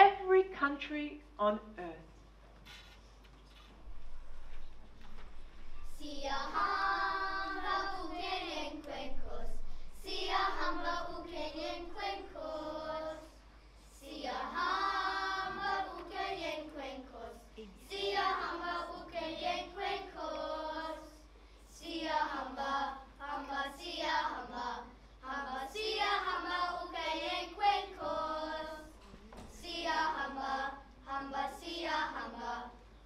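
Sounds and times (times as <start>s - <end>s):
children singing together: 5.8s - 32.8s.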